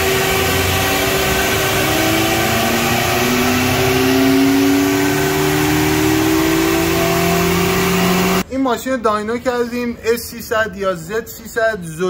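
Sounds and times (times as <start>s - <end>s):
car engine revving under load: 0.0s - 8.4s.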